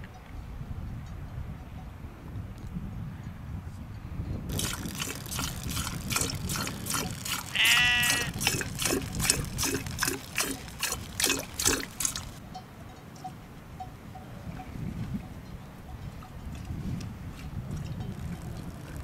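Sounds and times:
milk squirting into a pot: 4.5 - 12.4
sheep bleating: 7.5 - 8.4.

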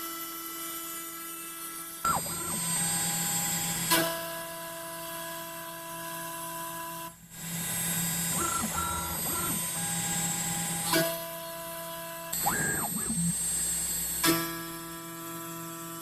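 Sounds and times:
stepper motors whining: 2.1 - 3.8, 7.4 - 11.0, 12.3 - 14.4
router motor whining: 2.1 - 4.6, 7.3 - 16.0.

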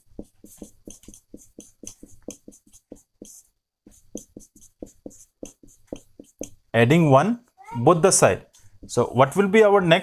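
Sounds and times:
marker squeaking on whiteboard: 0.0 - 6.7.

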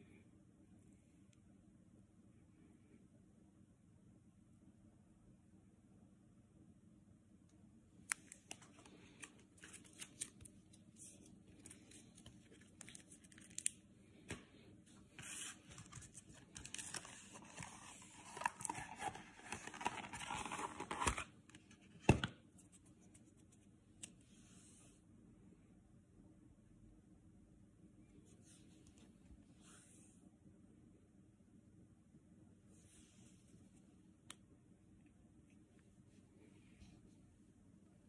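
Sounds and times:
plastic packaging rustling and scraping: 15.1 - 21.8.

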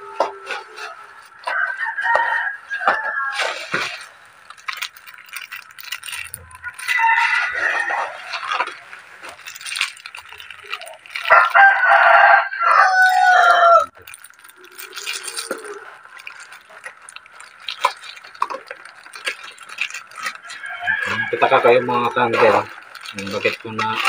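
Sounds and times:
rooster crowing: 0.0 - 3.7, 6.5 - 8.6, 11.2 - 13.9, 20.3 - 22.6
plastic packaging rustling: 0.1 - 24.0.

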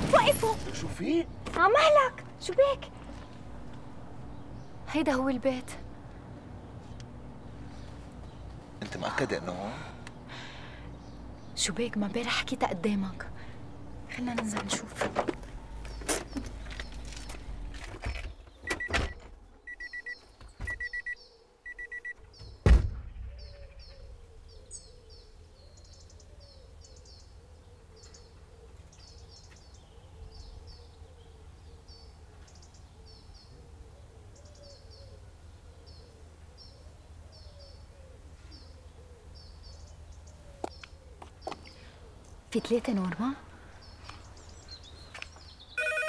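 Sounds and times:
low steady background hum: 0.0 - 18.3
birds chirping: 0.0 - 46.0
car doors opening: 14.4 - 19.4
short electronic car beeps: 18.7 - 22.2, 45.8 - 46.0
car door slamming shut: 22.6 - 23.1.

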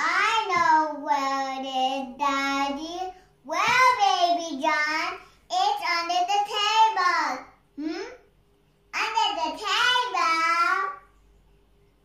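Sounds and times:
breaths: 5.2 - 5.5.

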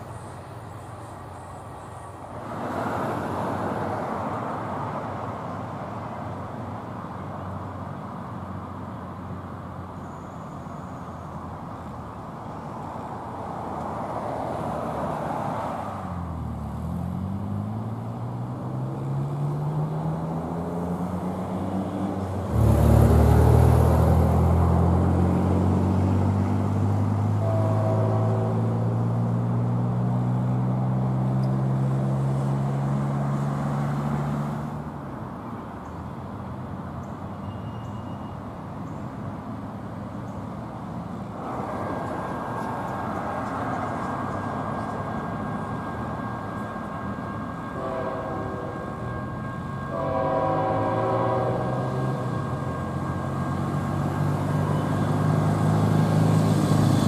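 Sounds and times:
diesel locomotive engines droning: 0.0 - 57.0.

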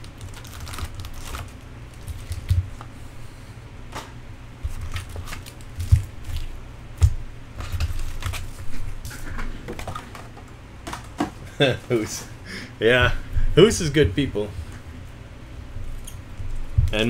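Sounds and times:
foil wrappers crinkling: 0.0 - 2.9, 4.6 - 6.6, 7.6 - 9.2.

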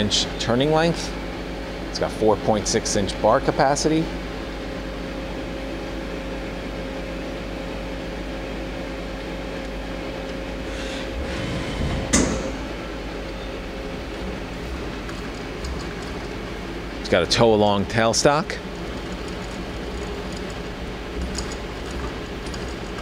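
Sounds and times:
machine humming with faint whine: 0.0 - 23.0
tool turret whirring: 10.6 - 13.2
sharp metal clunk: 12.1 - 12.6.

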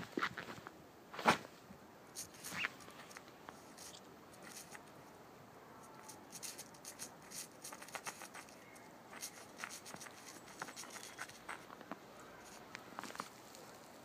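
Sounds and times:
puppy paws digging in snow: 6.3 - 11.7.

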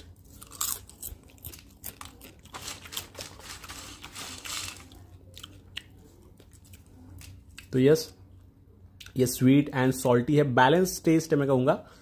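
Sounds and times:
popcorn crunching: 0.0 - 8.1.

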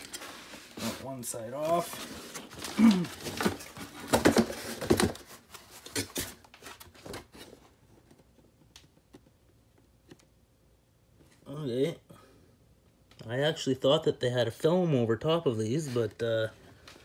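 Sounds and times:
cardboard rustling and scraping: 0.0 - 8.6.

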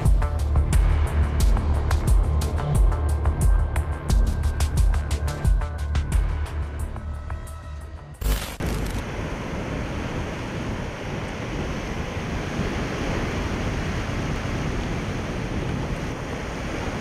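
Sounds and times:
sea waves washing in: 8.3 - 17.0.

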